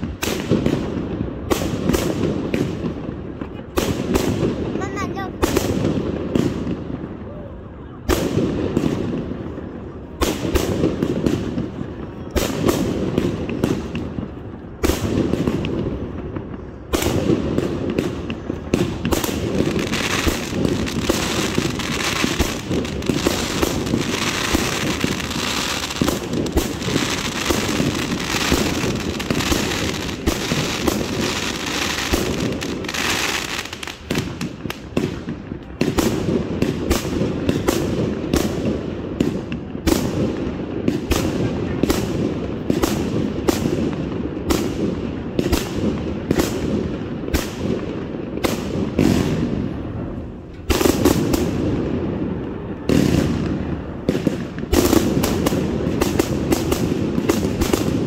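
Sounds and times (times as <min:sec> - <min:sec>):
fireworks bangs and pops: 0:00.0 - 0:58.0.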